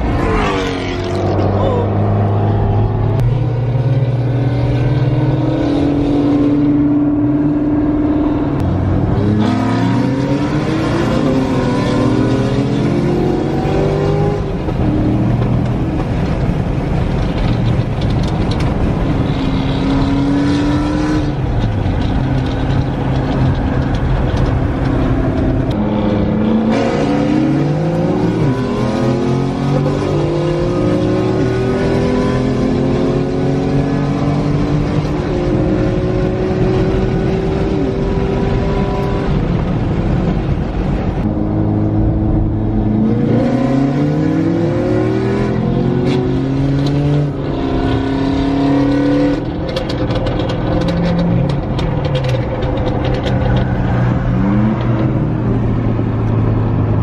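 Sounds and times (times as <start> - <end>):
car engines revving: 0.0 - 57.0.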